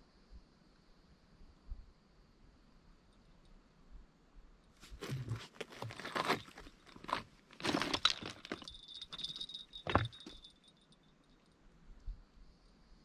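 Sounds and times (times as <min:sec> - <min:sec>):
footsteps crunching on rocks: 0:04.8 - 0:10.5.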